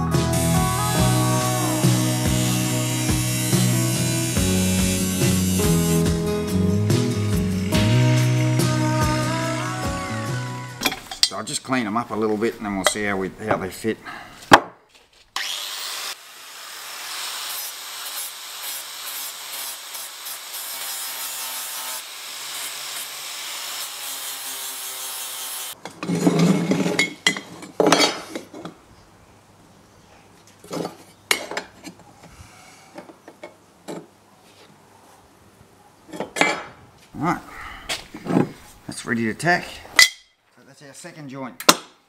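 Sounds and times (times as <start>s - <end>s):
angle grinder grinding metal: 0.1s - 11.2s, 15.4s - 25.8s.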